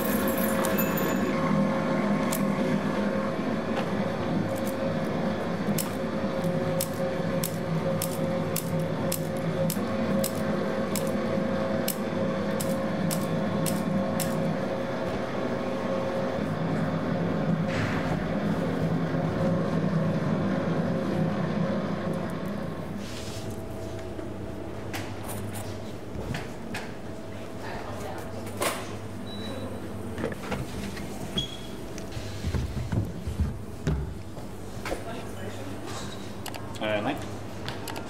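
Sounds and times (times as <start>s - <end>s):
pasta machine humming: 0.0s - 28.4s.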